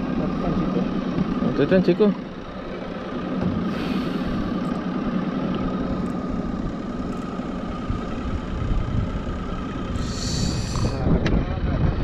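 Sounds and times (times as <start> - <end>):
boat motor running: 0.0 - 12.0.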